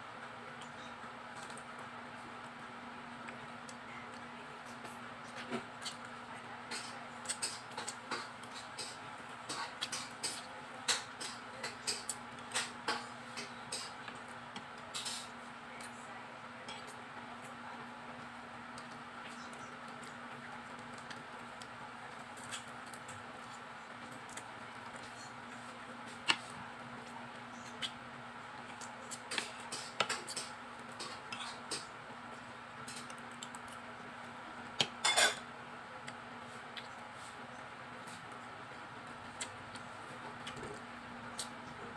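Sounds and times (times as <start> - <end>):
faint steady hum: 0.0 - 41.9
small clicks and taps of eating: 0.5 - 1.9, 3.2 - 16.0, 16.6 - 28.0, 28.6 - 37.0, 39.1 - 41.9
chewing: 3.2 - 16.0, 18.7 - 34.0, 39.2 - 41.9.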